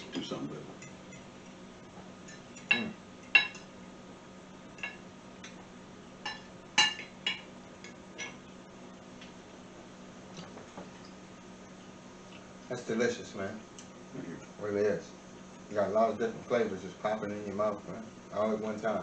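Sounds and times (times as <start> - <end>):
cutlery clinking on plates: 2.2 - 3.7.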